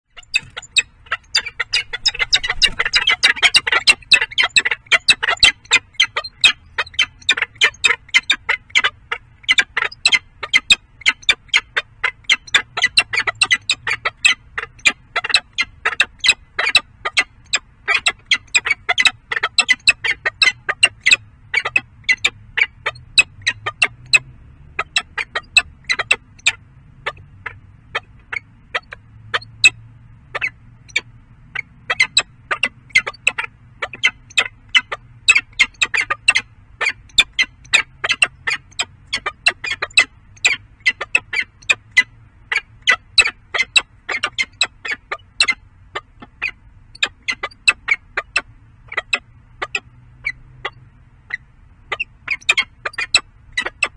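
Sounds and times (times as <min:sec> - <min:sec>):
falcons giving sharp calls: 0:00.2 - 0:10.8.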